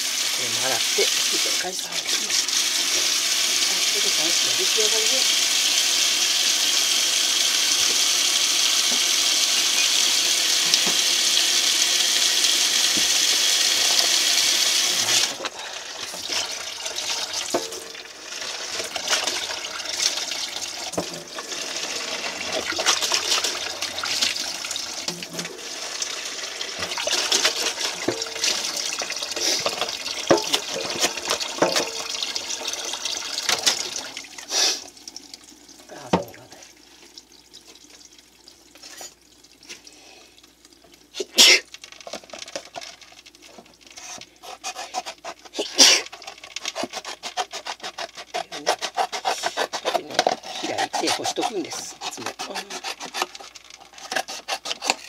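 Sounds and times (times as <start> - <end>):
tap running into steel sink: 10.6 - 11.2, 26.8 - 34.1.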